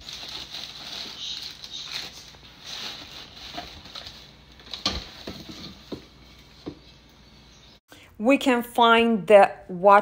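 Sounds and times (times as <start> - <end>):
plastic bag rustling: 0.0 - 6.0.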